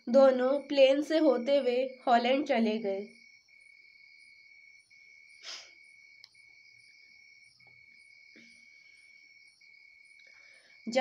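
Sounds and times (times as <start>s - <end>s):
soft puff of noise: 5.4s - 5.8s.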